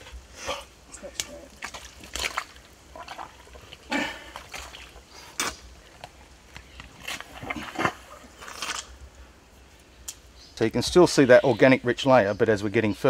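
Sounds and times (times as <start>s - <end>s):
wet mud squelching: 0.0s - 9.1s.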